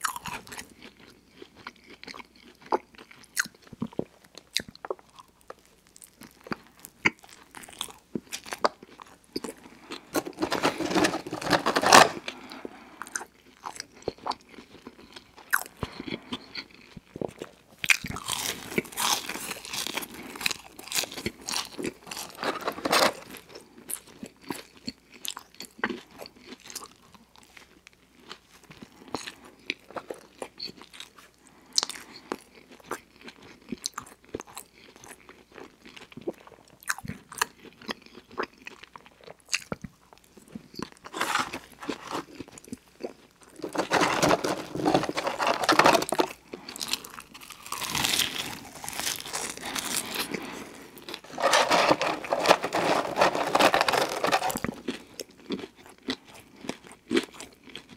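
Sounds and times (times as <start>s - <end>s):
person chewing: 0.0s - 26.9s, 40.6s - 57.9s
crunching while eating: 0.0s - 57.9s.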